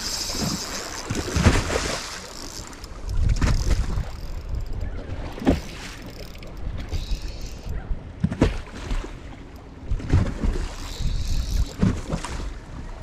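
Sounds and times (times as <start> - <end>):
water slapping against boat hull: 0.0 - 2.3, 5.2 - 6.9, 8.2 - 9.3, 11.6 - 13.0
wind buffeting microphone: 3.0 - 8.4.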